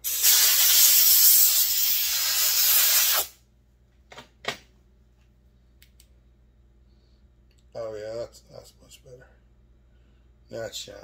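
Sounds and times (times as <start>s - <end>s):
compressed air blowgun hissing: 0.0s - 3.4s.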